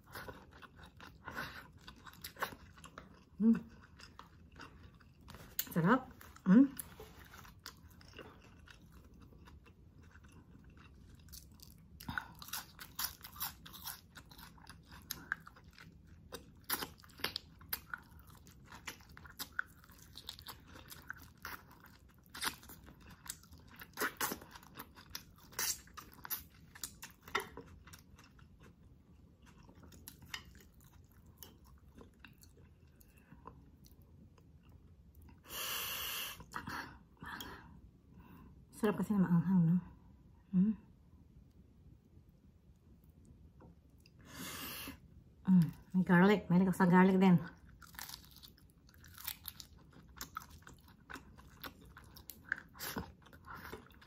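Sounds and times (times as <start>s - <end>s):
person chewing food: 0.0s - 36.8s, 47.6s - 54.0s.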